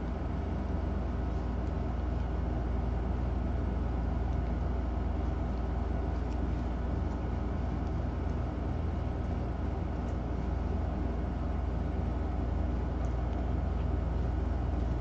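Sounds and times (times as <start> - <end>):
low mechanical hum: 0.0 - 15.0
faint ticks: 4.2 - 10.3.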